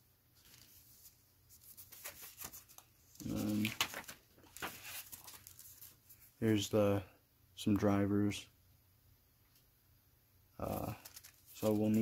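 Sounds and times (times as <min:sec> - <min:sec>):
packaging rustling and crinkling: 0:00.4 - 0:06.0, 0:10.7 - 0:12.0.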